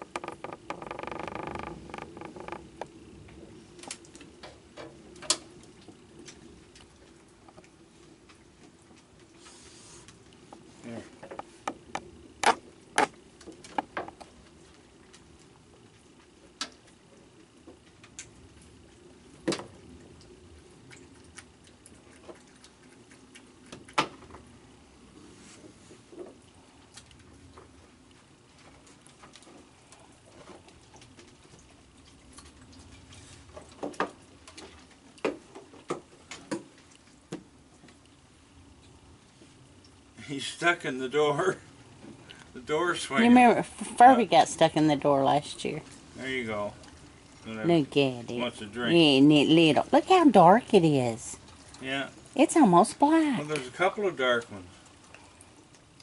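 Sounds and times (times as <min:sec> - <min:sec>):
pawing and sloshing in water: 0:12.4 - 0:40.2, 0:49.9 - 0:56.0.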